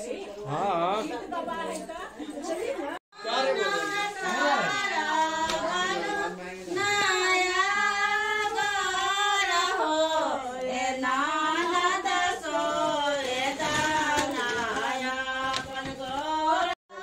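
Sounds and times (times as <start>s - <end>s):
women singing together: 1.0s - 17.0s.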